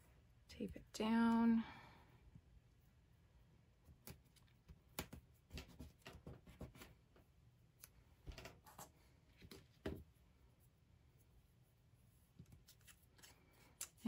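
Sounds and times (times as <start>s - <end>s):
hands handling cardstock and thread: 12.2s - 14.0s.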